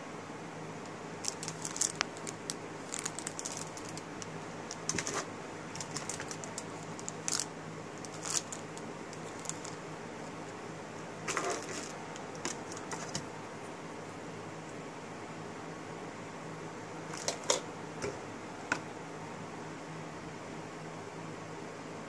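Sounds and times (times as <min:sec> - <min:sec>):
faint steady hum: 0:00.0 - 0:22.0
plastic bags crinkling: 0:01.2 - 0:10.4, 0:11.2 - 0:13.2, 0:17.1 - 0:17.6.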